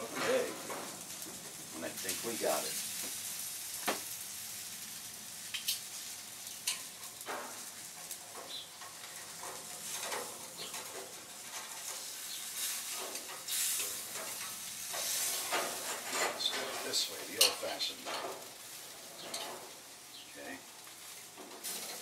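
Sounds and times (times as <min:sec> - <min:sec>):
food sizzling on grill: 0:00.0 - 0:22.0
metal tongs clicking and scraping: 0:06.6 - 0:07.4, 0:12.9 - 0:18.4.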